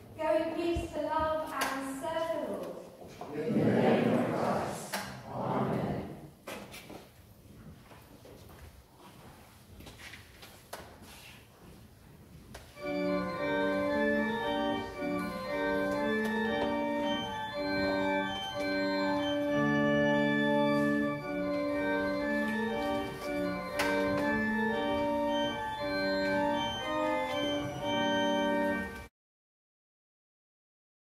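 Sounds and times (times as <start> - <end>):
church organ playing chords: 12.8 - 29.1.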